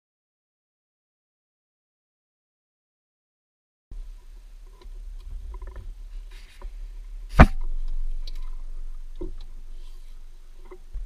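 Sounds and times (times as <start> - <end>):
steady low hum: 3.9 - 11.0
sharp knock: 7.3 - 8.0.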